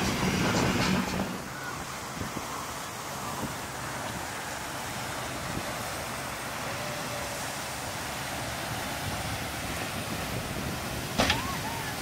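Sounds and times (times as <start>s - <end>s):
wind on microphone: 0.0s - 4.4s, 8.5s - 12.0s
boat engines: 0.0s - 12.0s
surf: 0.0s - 12.0s.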